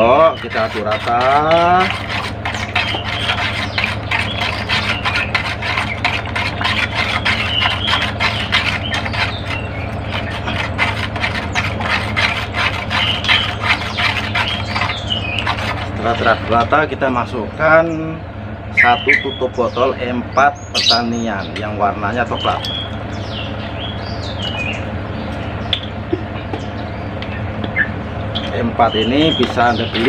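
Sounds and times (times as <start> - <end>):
steady low hum: 0.0 - 30.0
spoon stirring in plastic jug: 0.1 - 16.8.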